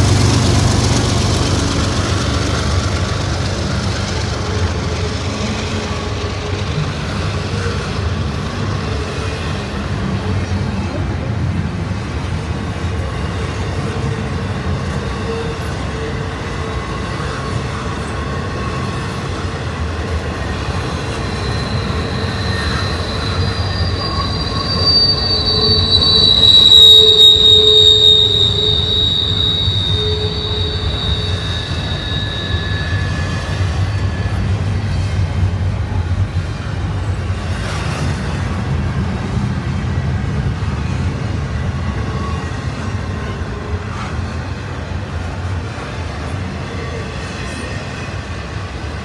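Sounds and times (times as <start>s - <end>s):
freight train rumbling past: 0.0s - 49.0s
high-pitched wheel squeal: 20.4s - 35.1s.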